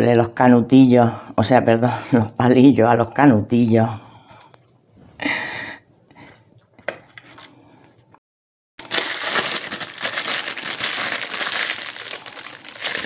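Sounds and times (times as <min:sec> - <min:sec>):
plastic piping bag crinkling: 0:08.8 - 0:13.0.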